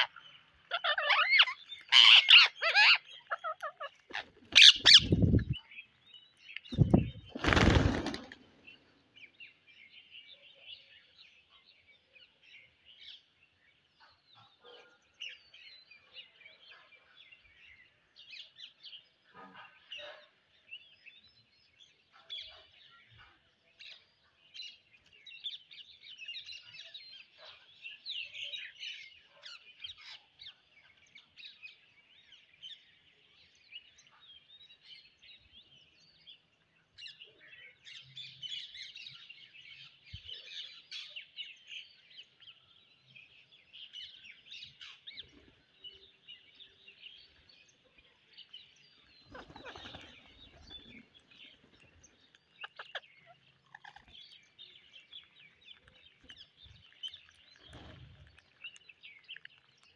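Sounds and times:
parakeets chattering: 0.0 - 5.6, 49.2 - 59.8.

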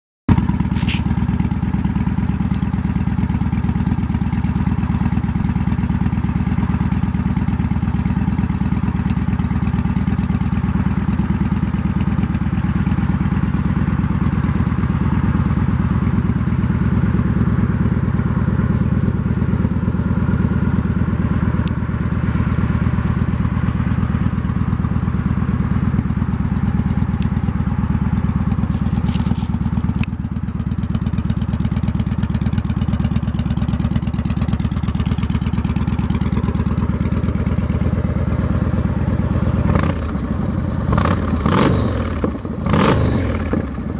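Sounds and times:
motorcycle engine idling: 0.3 - 43.9
engine revving: 39.6 - 43.9.

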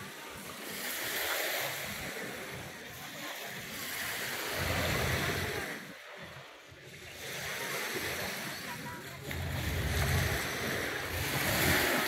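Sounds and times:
waves washing onto sandy beach: 0.0 - 12.0
wind on microphone: 4.4 - 5.8, 7.2 - 12.0.

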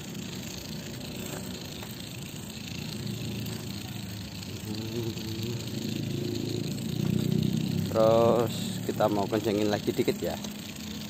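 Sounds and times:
toy car rumbling on pavement: 0.0 - 11.0.

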